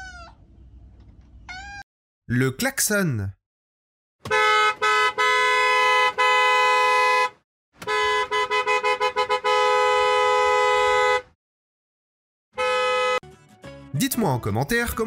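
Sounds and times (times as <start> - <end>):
two-note car horn: 4.3 - 11.3, 12.6 - 13.2.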